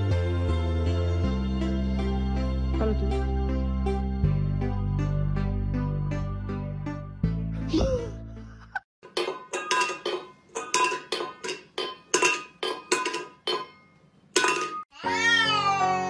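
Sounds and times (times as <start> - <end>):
metal bowl clanking on floor: 9.0 - 14.9.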